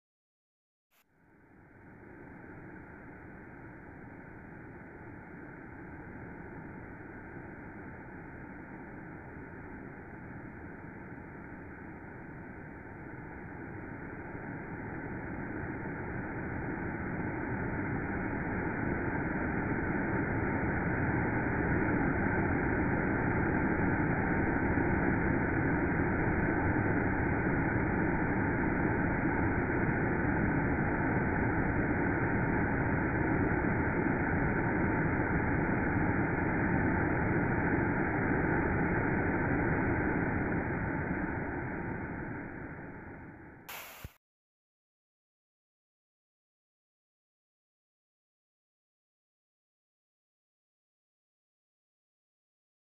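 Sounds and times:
waterfall and creek rushing: 43.7 - 44.1.

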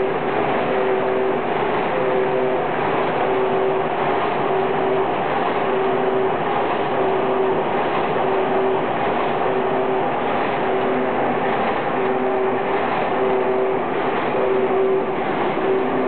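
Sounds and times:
machine mechanical clatter: 2.8 - 16.0
pulsing machine tone: 11.9 - 16.0.

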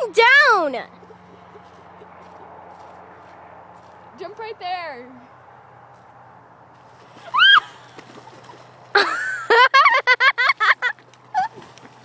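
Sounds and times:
short rising cry: 7.2 - 7.9
high-pitched laughter: 9.0 - 11.6.

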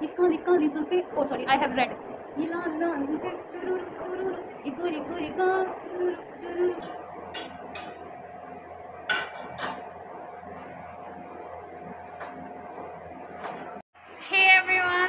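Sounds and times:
steady hum: 0.0 - 15.0
metal spoon clinking on pan: 9.1 - 9.7.

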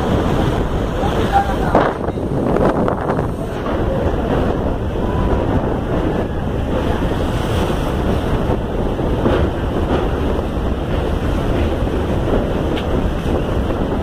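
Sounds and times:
train running rumble: 0.0 - 14.0
wind rushing over microphone: 0.0 - 14.0.

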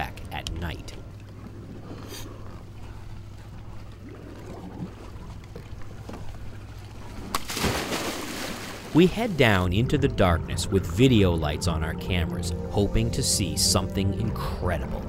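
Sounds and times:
rush of water and bubbles: 3.8 - 6.0, 6.9 - 9.5.

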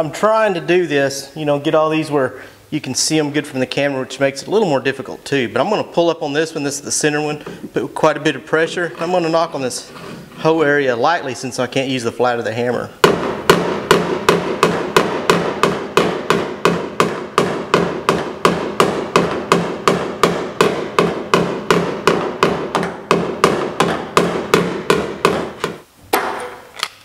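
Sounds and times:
hammer tapping on sheet metal: 13.0 - 26.3.

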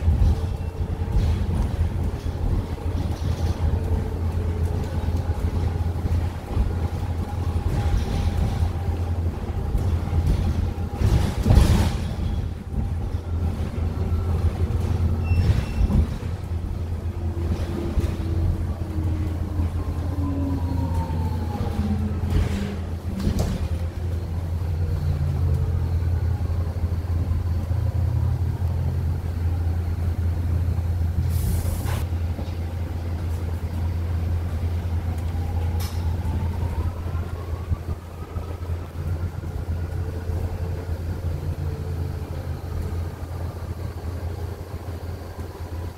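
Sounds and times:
electric bus drive whine: 0.0 - 45.9
short hiss of air: 31.2 - 32.1.

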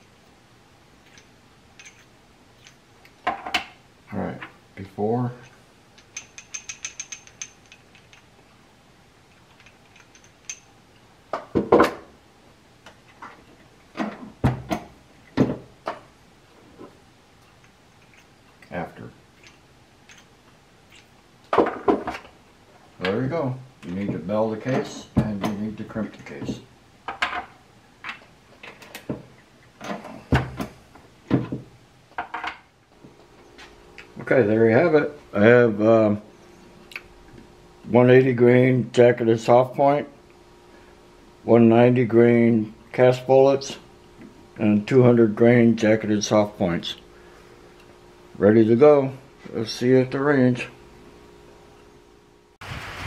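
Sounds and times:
brass cartridges clicking: 1.1 - 3.2, 5.4 - 8.3, 9.3 - 10.7, 19.4 - 20.3.

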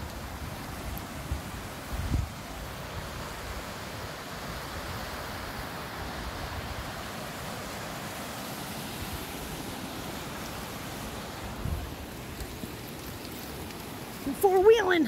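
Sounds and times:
wind rumble on microphone: 0.0 - 3.7, 11.2 - 14.6
stream rushing over rocks: 0.0 - 15.0.

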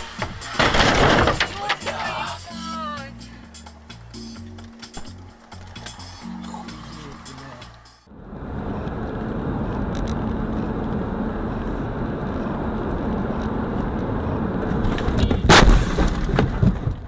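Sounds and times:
car crash: 0.0 - 2.3, 14.6 - 17.0
car road and engine noise: 0.0 - 17.0.

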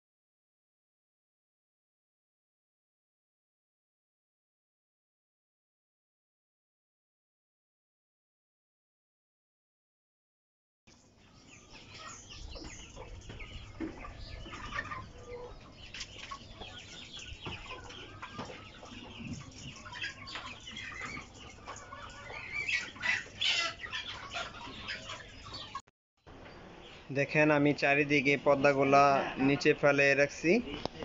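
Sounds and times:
chickens clucking and calling: 10.9 - 31.0.

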